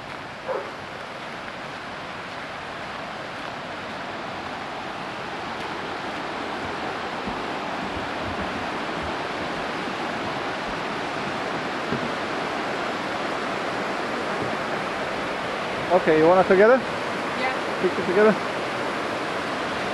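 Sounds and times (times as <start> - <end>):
footsteps on wooden planks: 0.0 - 4.6, 5.5 - 13.1, 13.7 - 15.2
rushing river rapids: 0.0 - 19.9.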